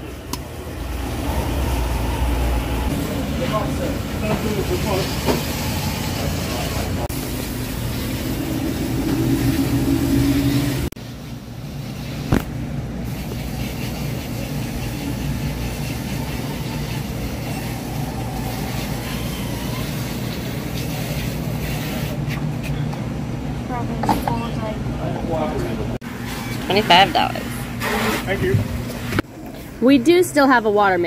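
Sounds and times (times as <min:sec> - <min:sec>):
fuel pump humming: 0:00.0 - 0:22.1.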